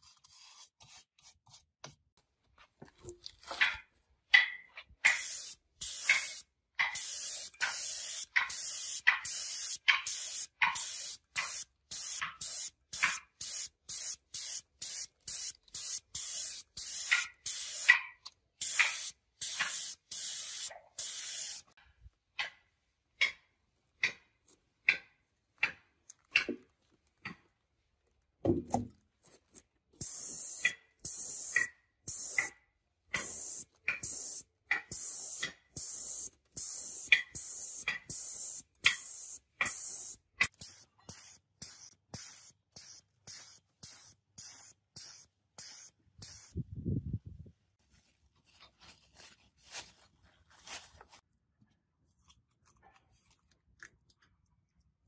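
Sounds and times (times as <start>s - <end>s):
spray gun hissing bursts: 5.1s - 18.0s, 18.6s - 21.7s, 30.0s - 32.5s, 33.2s - 46.5s.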